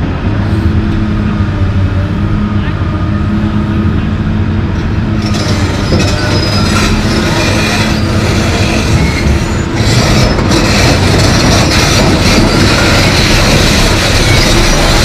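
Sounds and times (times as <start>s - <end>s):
diesel engine running: 0.0s - 15.0s
steel crawler tracks clanking: 4.7s - 15.0s
high thin track squeals: 5.1s - 15.0s.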